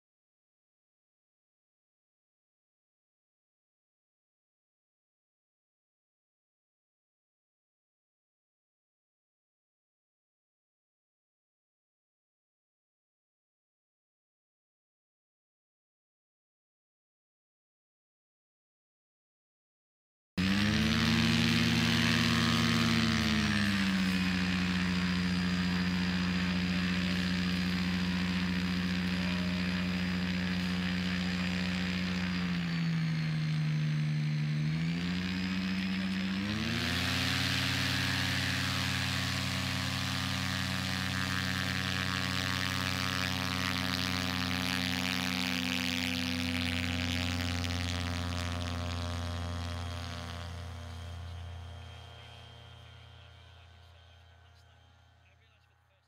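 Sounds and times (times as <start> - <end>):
engine running: 20.4 - 56.0.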